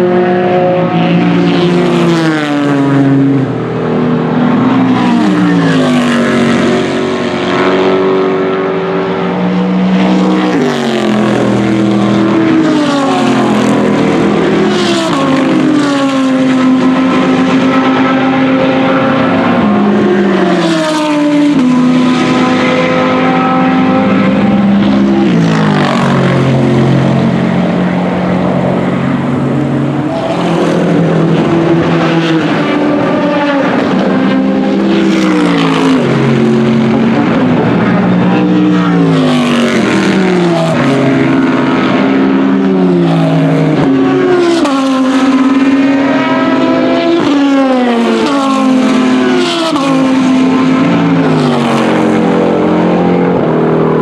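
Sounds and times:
race car engines passing: 0.0s - 54.0s.

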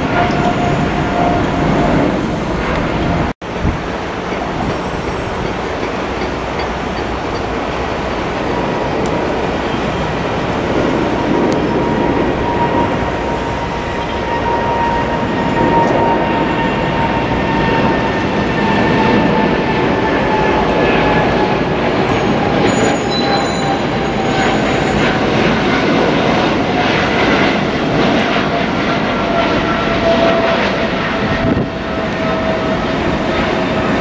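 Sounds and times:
jet engine roar: 0.0s - 34.0s
jet engine whine: 0.0s - 34.0s.

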